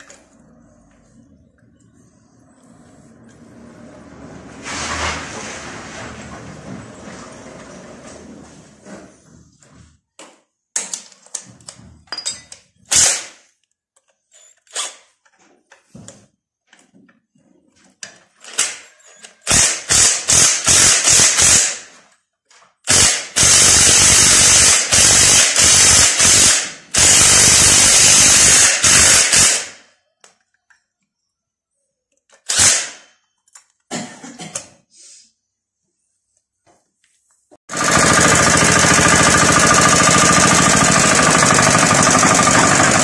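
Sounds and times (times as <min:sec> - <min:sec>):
impact wrench bursts: 0:12.9 - 0:13.4, 0:18.5 - 0:21.9, 0:22.8 - 0:29.8, 0:32.5 - 0:33.1, 0:37.7 - 0:43.0.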